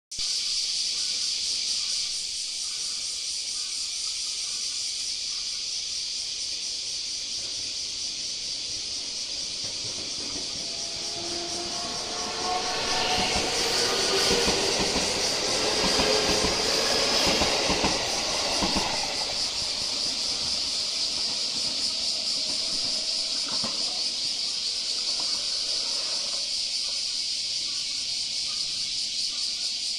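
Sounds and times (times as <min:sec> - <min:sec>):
steady high-pitched hiss: 0:00.1 - 0:29.9
electric train pulling away: 0:06.8 - 0:29.1
wheels clacking over rail joints: 0:08.7 - 0:27.7.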